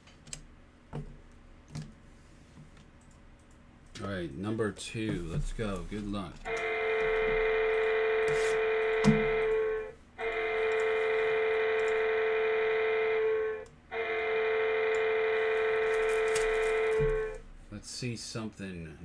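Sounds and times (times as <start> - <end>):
electronic buzzer tone: 6.5 - 17.4.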